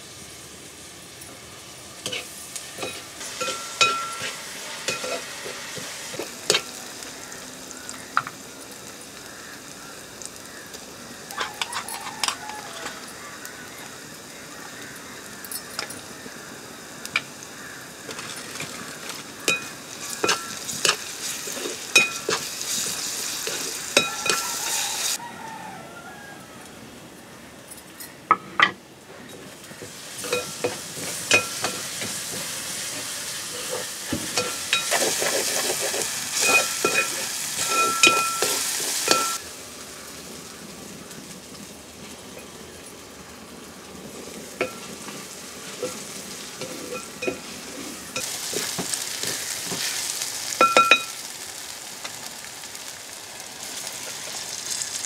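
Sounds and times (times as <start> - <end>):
onions sizzling in oil: 0.0 - 25.8, 29.2 - 55.0
metal spoon scraping a pan: 2.0 - 7.4, 11.3 - 13.2, 18.1 - 25.2, 29.3 - 39.4, 45.6 - 50.0.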